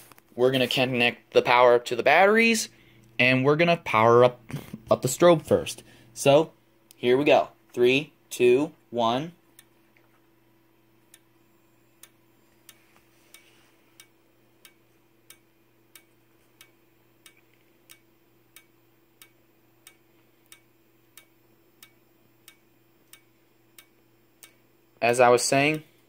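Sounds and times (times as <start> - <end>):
strobe ticking: 9.4 - 9.8, 10.8 - 26.0.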